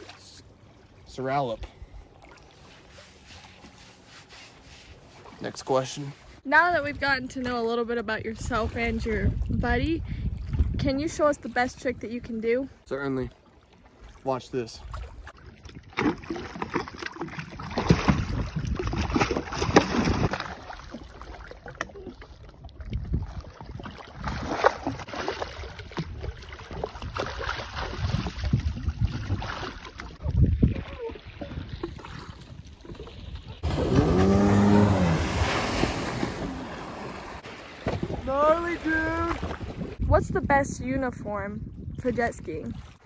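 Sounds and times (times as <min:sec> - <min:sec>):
water splashing and sloshing: 0:00.0 - 0:43.0
wind on microphone: 0:08.1 - 0:12.3, 0:17.8 - 0:20.3, 0:22.4 - 0:25.0, 0:25.8 - 0:36.7, 0:37.3 - 0:43.0
rushing water: 0:12.9 - 0:40.2.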